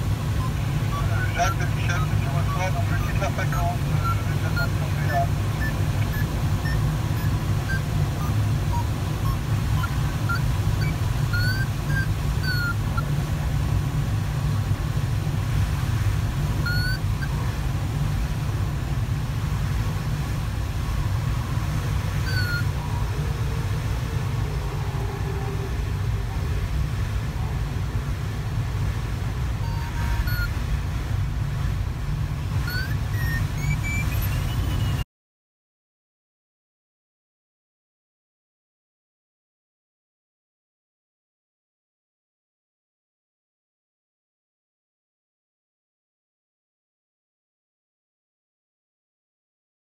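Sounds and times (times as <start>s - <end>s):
rush of airflow around cockpit: 0.0s - 35.0s
short high chirps: 4.0s - 12.8s, 16.6s - 17.4s, 22.2s - 23.2s, 29.6s - 30.6s, 32.6s - 35.0s.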